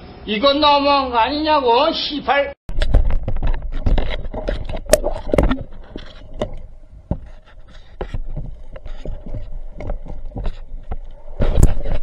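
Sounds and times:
underwater clicks and knocks: 2.7s - 12.0s.

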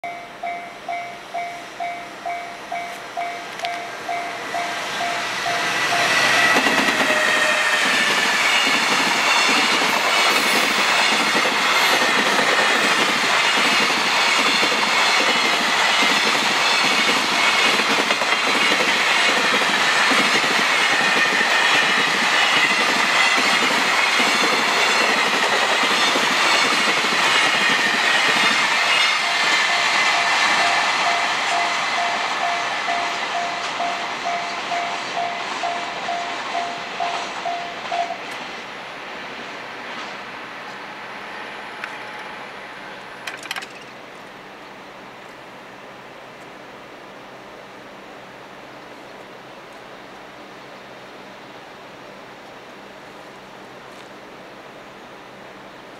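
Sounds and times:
train wheels clattering: 2.8s - 38.4s.

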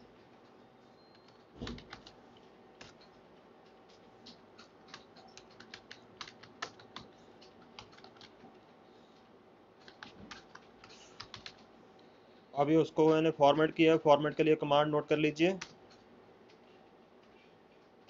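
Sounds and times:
keyboard typing clicks: 1.1s - 2.2s, 3.9s - 8.4s, 9.8s - 11.7s.

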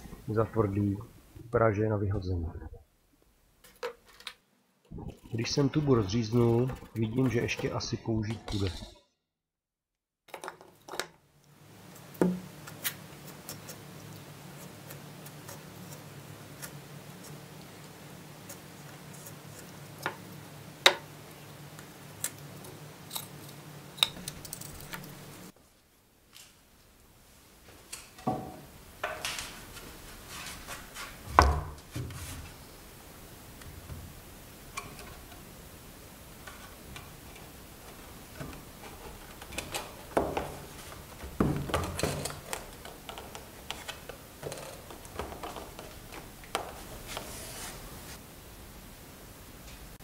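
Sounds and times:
wood knocking and scraping: 5.0s - 8.7s, 28.2s - 32.6s, 36.4s - 48.2s.

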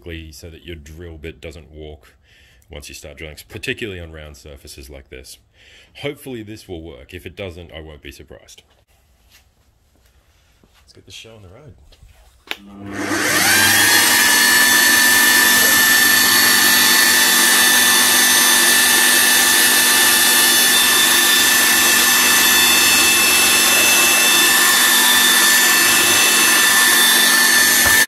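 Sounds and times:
drill press motor whine: 12.7s - 28.0s.

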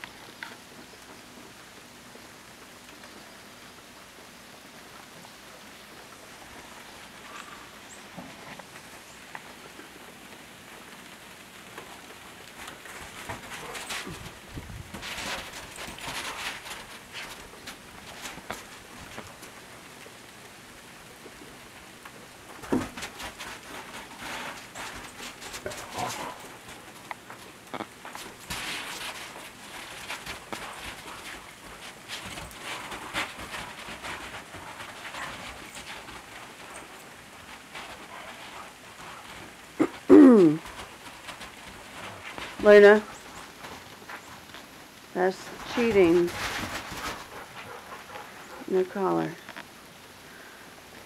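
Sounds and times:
freezing rain hissing: 0.0s - 51.0s
dog paws clicking on ice: 11.7s - 19.6s, 22.5s - 39.8s.

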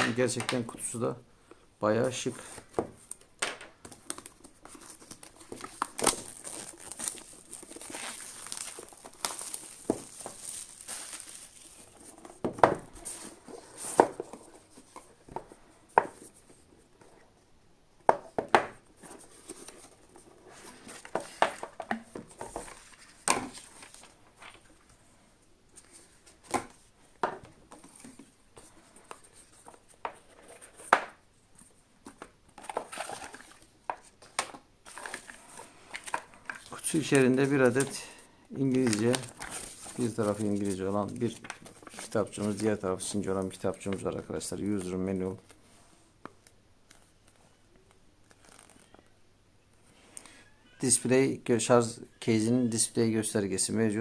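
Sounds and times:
plastic wrap crinkling and tearing: 4.0s - 12.2s, 38.6s - 42.8s.

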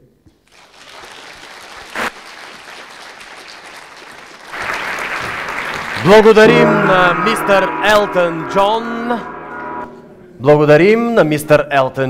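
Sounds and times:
audience applauding: 0.4s - 6.5s.

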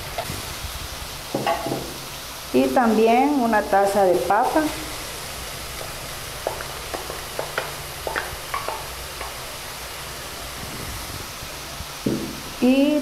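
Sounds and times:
meat sizzling in a frying pan: 0.0s - 13.0s
diced potato tapping into pan: 5.8s - 9.5s.

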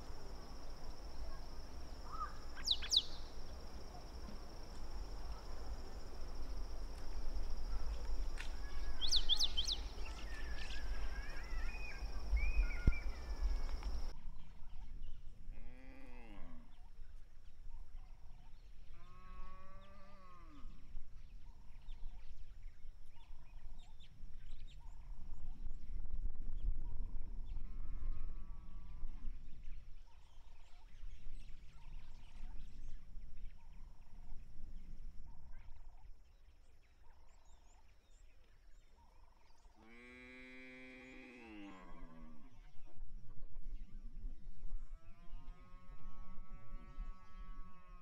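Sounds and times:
high insect drone: 0.0s - 14.1s
drawn-out bird calls: 1.0s - 4.5s
birds chirping and whistling: 2.1s - 3.3s, 8.9s - 13.4s.

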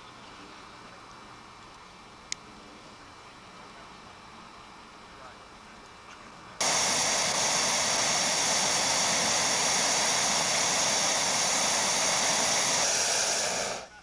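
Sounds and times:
propane burner blast: 6.6s - 14.0s.

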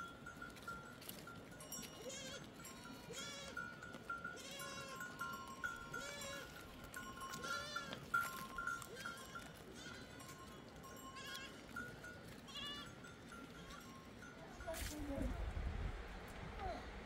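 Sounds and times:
livestock bleating: 2.0s - 10.4s, 11.2s - 11.8s, 12.4s - 13.0s.

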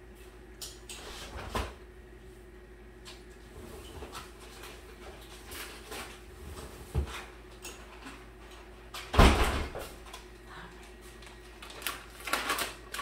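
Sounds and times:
refrigerator door thump: 9.1s - 9.8s.

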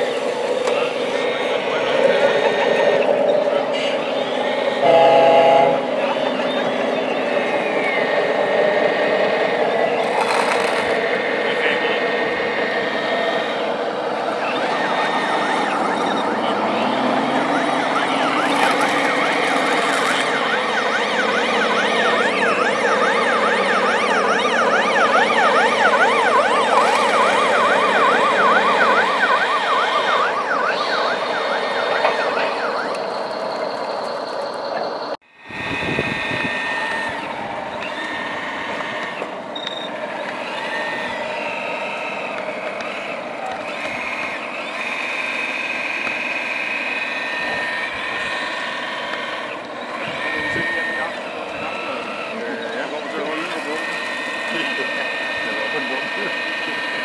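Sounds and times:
machine noise: 0.0s - 57.0s
siren yelping: 0.0s - 57.0s.

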